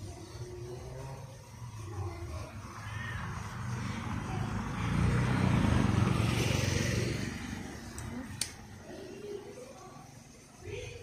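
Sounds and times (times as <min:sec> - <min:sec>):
vehicle passing by: 0:00.6 - 0:08.8.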